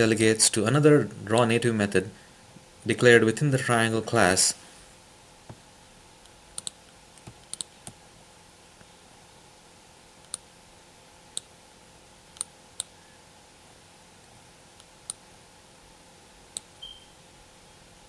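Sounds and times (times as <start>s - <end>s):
faint steady hiss: 0.0s - 18.0s
computer mouse clicking: 6.2s - 8.0s, 10.2s - 10.4s, 12.3s - 12.9s, 14.8s - 15.2s.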